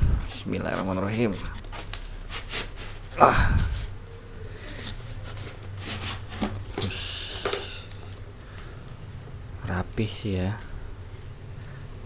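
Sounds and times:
steady low hum: 0.0 - 12.0
cardboard scraping against metal: 0.6 - 3.9, 4.6 - 6.9.

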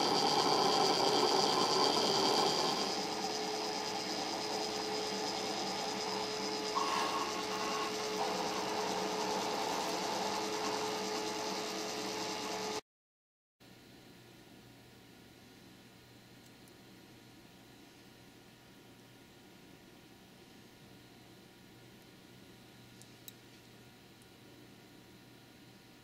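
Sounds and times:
stepper motors whining: 0.0 - 12.8.

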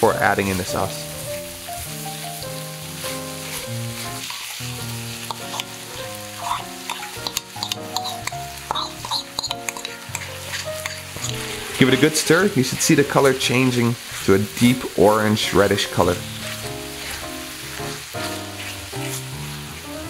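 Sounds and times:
light background music: 0.0 - 20.0
meat and vegetables sizzling in pan: 0.0 - 20.0
wooden spatula scraping pan: 6.4 - 14.6, 15.6 - 19.9.

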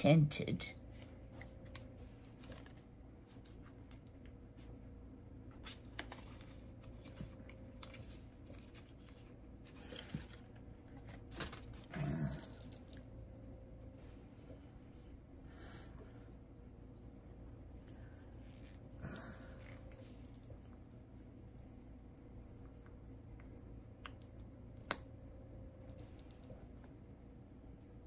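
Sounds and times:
small package clicking and rustling: 1.6 - 4.2, 5.6 - 13.1.

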